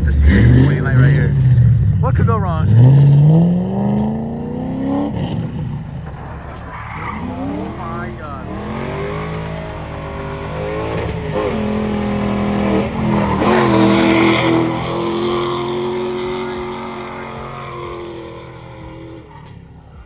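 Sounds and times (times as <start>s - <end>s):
car engine revving: 0.0s - 20.0s
tyres squealing: 6.3s - 20.0s.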